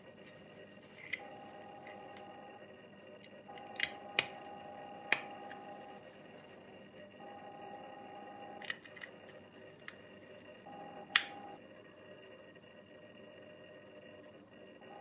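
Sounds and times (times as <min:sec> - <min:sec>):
faint steady hum: 0:00.0 - 0:15.0
plastic parts clicking: 0:03.2 - 0:04.4, 0:08.6 - 0:10.0.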